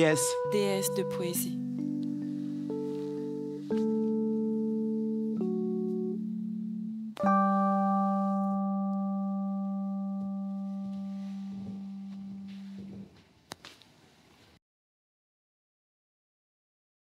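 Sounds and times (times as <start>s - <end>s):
ringing chord struck: 0.0s - 13.1s
held music chord: 0.0s - 13.2s.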